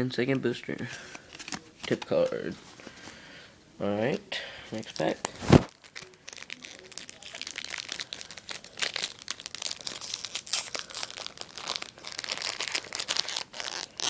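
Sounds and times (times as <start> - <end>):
foil wrapper crinkling: 4.9 - 14.0.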